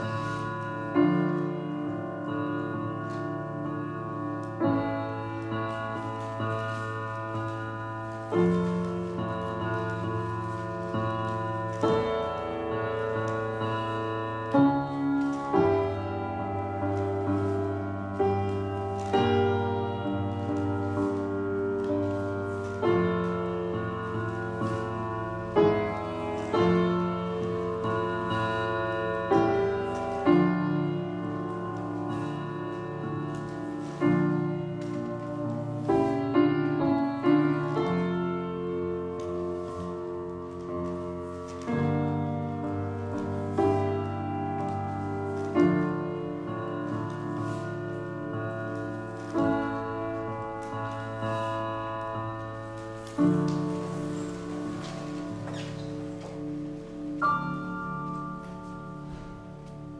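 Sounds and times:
piano playing slow chords: 0:00.0 - 0:59.9.

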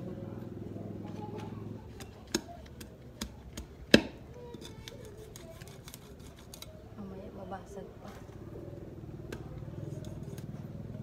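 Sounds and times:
knife chopping plant roots: 0:01.9 - 0:06.6.

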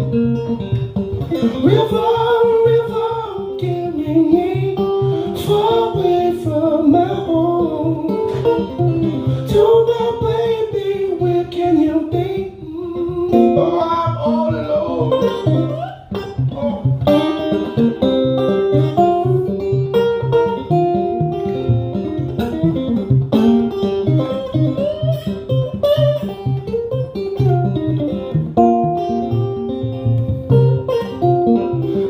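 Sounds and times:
slide acoustic guitar: 0:00.0 - 0:32.0.

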